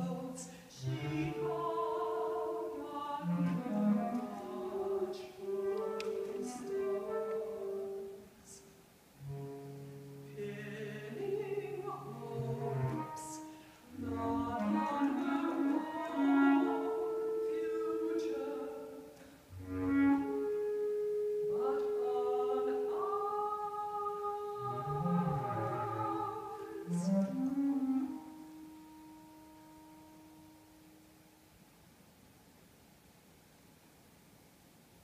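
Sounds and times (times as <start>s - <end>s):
woman singing art song: 0.0s - 30.2s
bass clarinet low notes: 12.1s - 31.0s.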